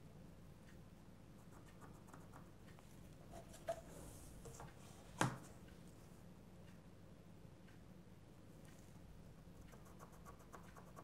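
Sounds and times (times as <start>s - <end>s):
faint ticks: 8.5s - 11.0s.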